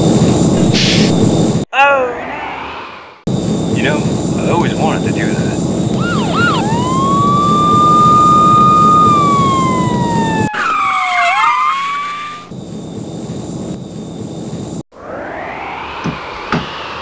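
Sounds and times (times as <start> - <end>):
jet engine rushing: 0.0 - 1.6, 2.3 - 17.0
cartoon police siren: 6.0 - 12.5.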